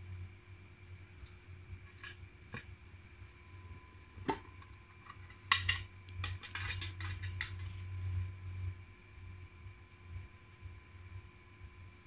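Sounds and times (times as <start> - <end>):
metal tins clicking and clinking: 4.3 - 7.8.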